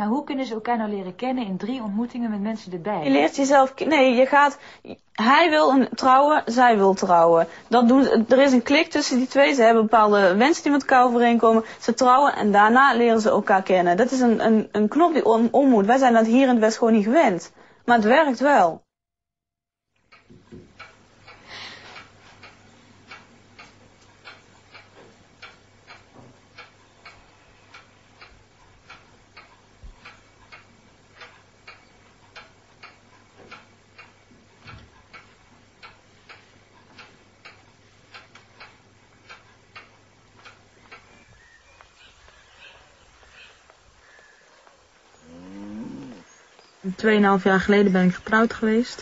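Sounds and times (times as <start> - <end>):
clock ticking: 1.6 - 18.6, 20.0 - 41.2
faint low hum: 20.1 - 49.0.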